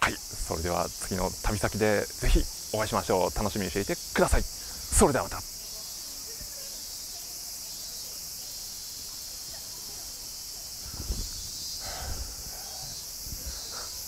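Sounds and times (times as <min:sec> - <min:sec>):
insects hissing: 0:00.0 - 0:14.0
breath puffing on microphone: 0:10.8 - 0:14.0.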